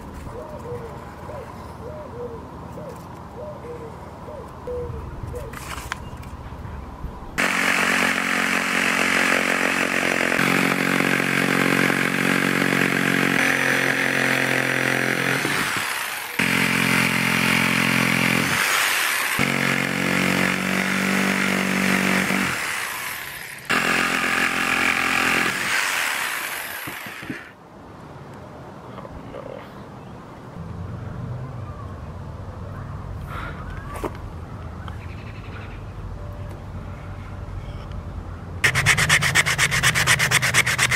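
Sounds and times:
electric jigsaw cutting wood: 7.4 - 27.6, 38.6 - 40.9.

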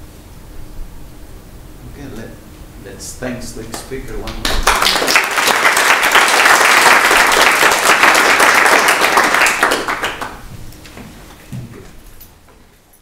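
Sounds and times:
audience applauding: 4.3 - 10.4.

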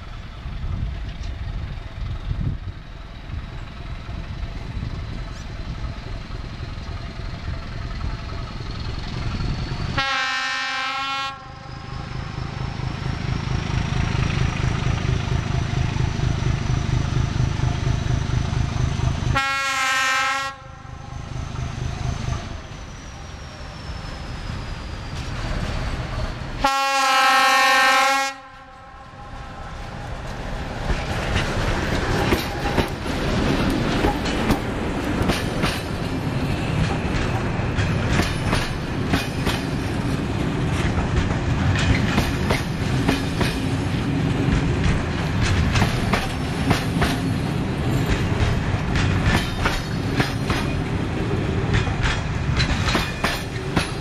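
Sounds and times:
locomotive engine running: 0.0 - 10.6, 11.4 - 19.8, 20.6 - 26.7, 29.0 - 54.0
locomotive horn blasts: 10.0 - 11.7, 19.3 - 20.9, 26.6 - 29.5
train wheels clattering over rails: 30.0 - 54.0.

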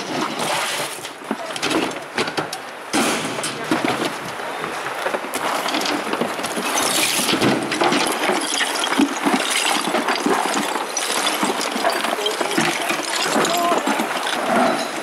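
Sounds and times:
rubble clinking and scraping: 0.0 - 15.0.

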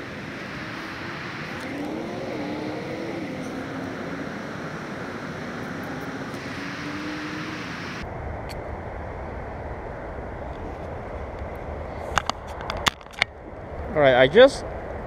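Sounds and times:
cars passing: 0.0 - 8.1
engine hum: 0.0 - 13.9.

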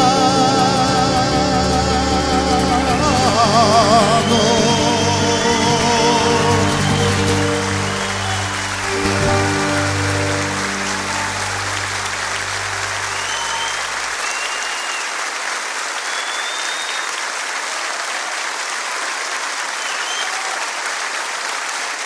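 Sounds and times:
audience applauding: 0.0 - 22.0
low chord ringing: 1.2 - 14.2
short whistles: 6.3 - 8.9, 13.0 - 15.2, 16.0 - 17.2, 19.8 - 20.5.

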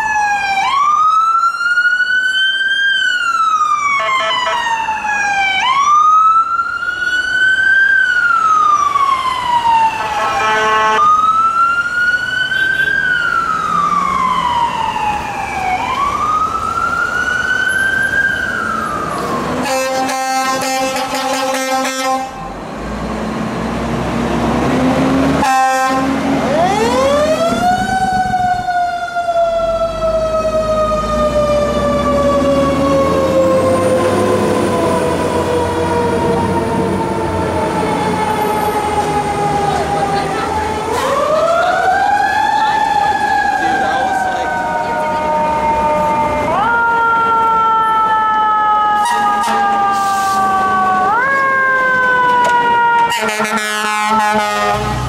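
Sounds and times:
fire truck siren wailing: 0.0 - 55.0
air horn blasts: 10.0 - 11.1, 19.6 - 22.5, 25.4 - 26.2, 49.0 - 50.5, 53.0 - 55.0.

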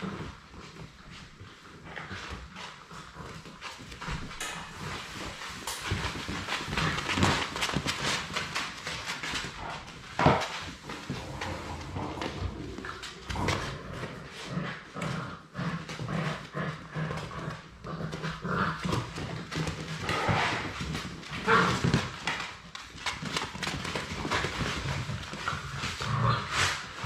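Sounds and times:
puppy claws clicking on wooden floor: 18.8 - 26.0.

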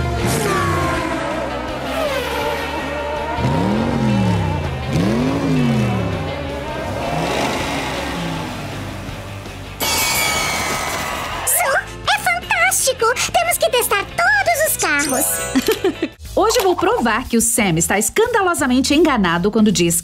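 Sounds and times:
race car passing by: 0.0 - 9.6
race car engine revving: 0.0 - 9.8
background music: 0.0 - 20.0.

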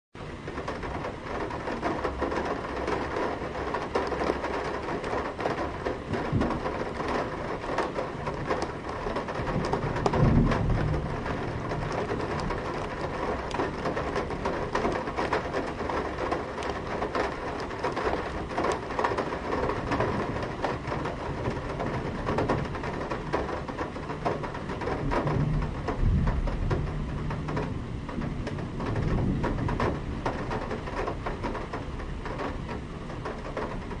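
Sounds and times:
low thunder rumbles: 0.2 - 34.0
rain tapping on metal sill: 0.2 - 34.0.

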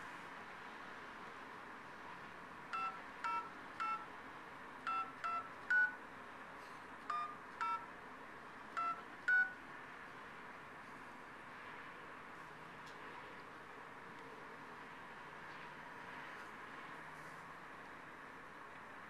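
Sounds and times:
touch-tone keypad beeps: 2.7 - 4.1, 4.9 - 6.0, 7.1 - 7.9, 8.8 - 9.6.

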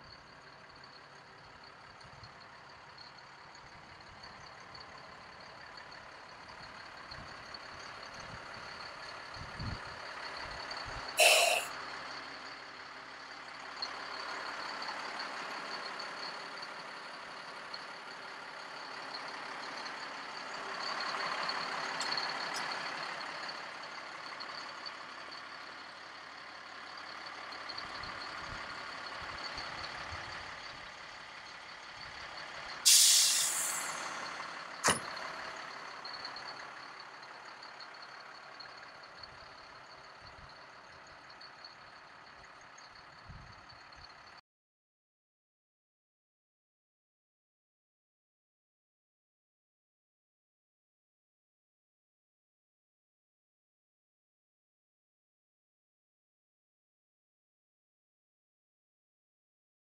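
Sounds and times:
air brake hissing: 11.2 - 11.7, 32.8 - 35.0.

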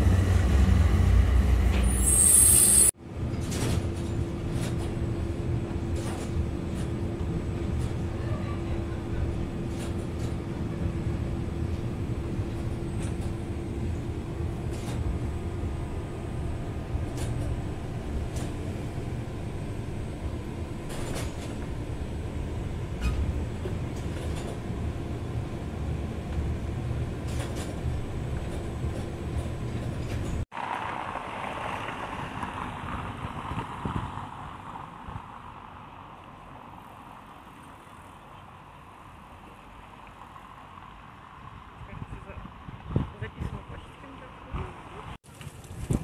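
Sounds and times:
tram wheels rumbling on rails: 0.0 - 46.0.

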